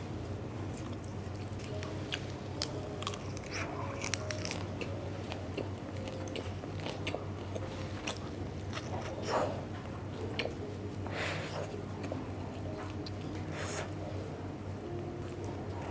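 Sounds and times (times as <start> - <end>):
crisp chewing crunches: 0.7 - 9.3.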